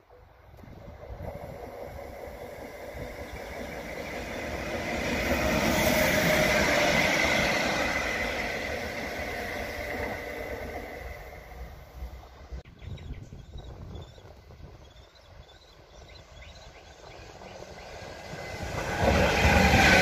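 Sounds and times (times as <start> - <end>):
wheels rumbling on rails: 0.0 - 20.0
locomotive whine: 0.1 - 12.6.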